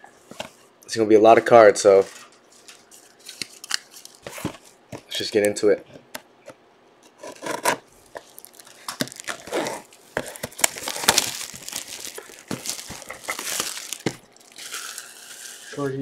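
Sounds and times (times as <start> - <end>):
plastic shrink wrap crinkling and tearing: 2.5 - 4.7, 7.2 - 16.0.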